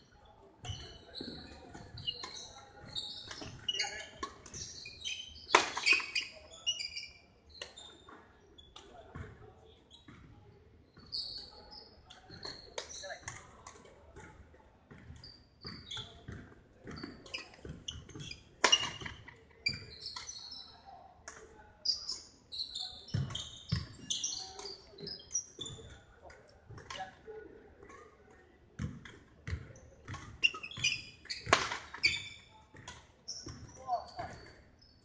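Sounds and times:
sneakers squeaking: 0.1 - 21.0, 21.8 - 27.2, 28.8 - 35.0
rackets hitting shuttlecock: 5.4 - 6.2, 16.3 - 19.2, 31.4 - 34.5.

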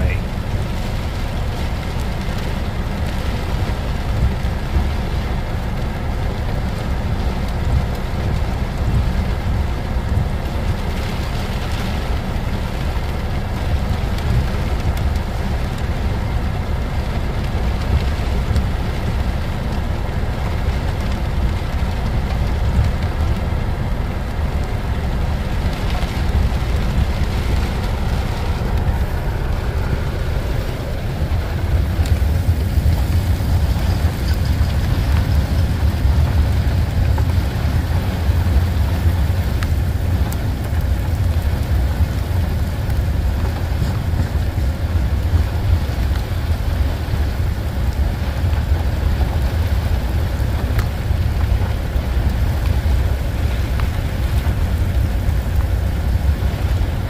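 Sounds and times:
heavy rain on car roof: 0.0 - 57.0
freight train rumbling past: 26.5 - 36.7.

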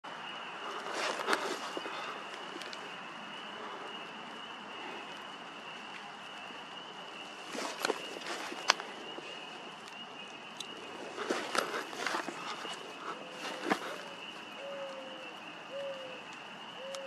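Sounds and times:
steady outdoor hiss: 0.0 - 17.0
dry leaves rustling and crackling: 0.6 - 3.1, 5.4 - 16.1.

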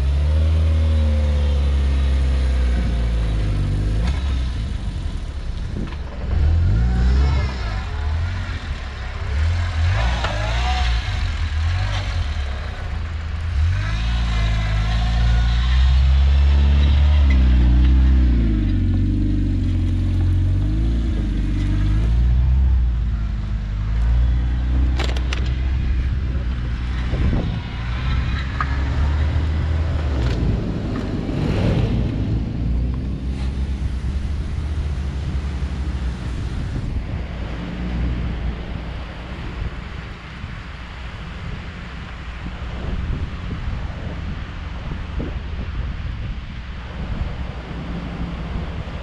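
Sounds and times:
engine revving: 6.2 - 23.0.

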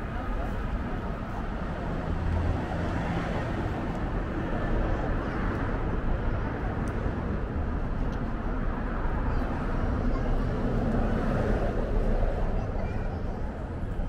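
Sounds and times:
traffic rumble: 0.0 - 14.0
voices of passers-by: 0.0 - 14.0.

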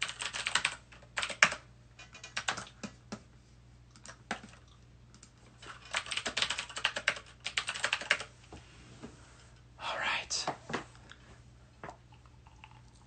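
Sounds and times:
fast keyboard typing: 0.0 - 3.2, 3.9 - 8.3.

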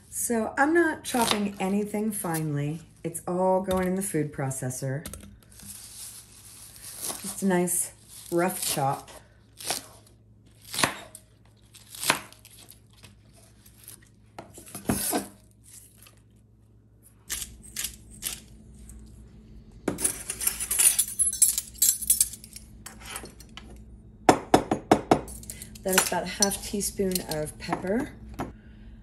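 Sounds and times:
scraping and rustling of greens: 5.5 - 9.1.

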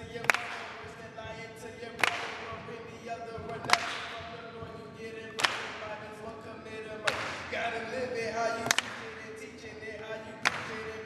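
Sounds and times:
person singing into microphone: 0.0 - 11.0
sharp echoing snap: 2.0 - 2.6, 3.6 - 4.3, 5.4 - 5.8, 8.6 - 9.2.

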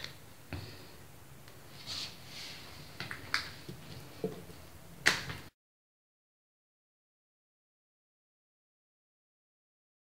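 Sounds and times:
hands swishing on dough: 1.7 - 2.9.

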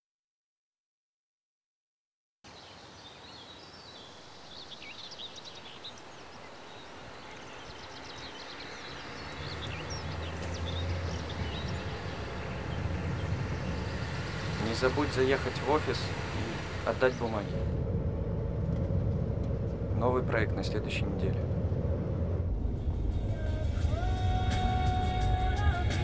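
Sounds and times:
birds chirping: 2.5 - 17.8
car engine and tyres hum: 7.8 - 23.7.

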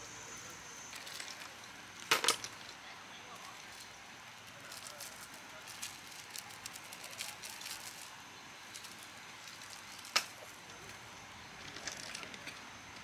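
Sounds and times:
light clicks and crackles: 0.9 - 11.0.

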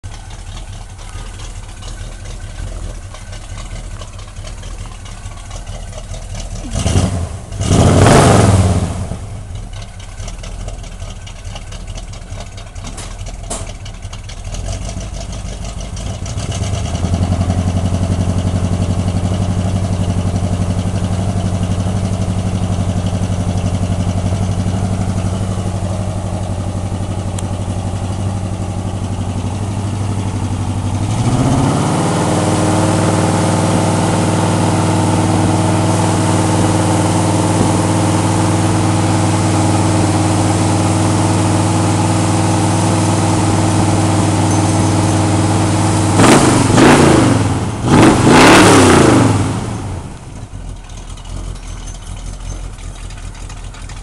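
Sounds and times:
car engine idling: 0.0 - 54.0
rush of exhaust noise: 31.1 - 50.4.

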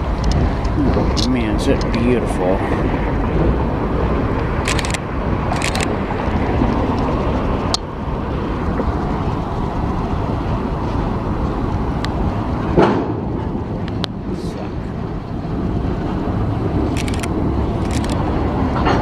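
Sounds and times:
freight train rumbling: 0.0 - 19.0
sharp clicks: 4.6 - 5.9, 16.9 - 18.3.

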